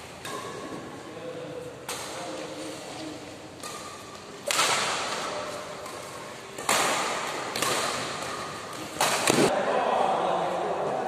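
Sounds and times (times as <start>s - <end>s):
racket hitting shuttlecock: 0.1s - 0.9s, 1.8s - 2.4s, 3.6s - 9.6s.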